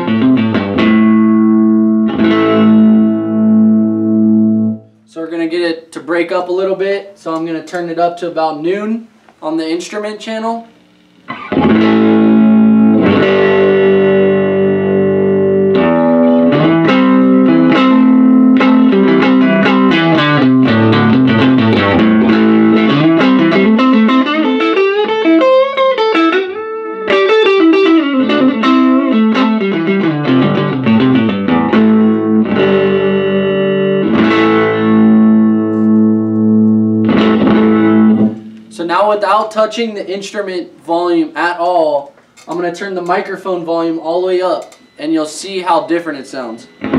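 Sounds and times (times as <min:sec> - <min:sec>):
overdriven electric guitar: 0:00.0 - 0:05.1, 0:10.7 - 0:38.8, 0:46.4 - 0:46.9.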